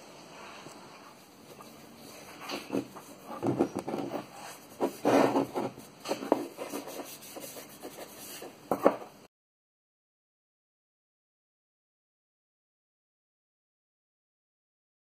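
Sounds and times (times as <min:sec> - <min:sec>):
gloved hands rubbing wood: 0:01.4 - 0:08.6.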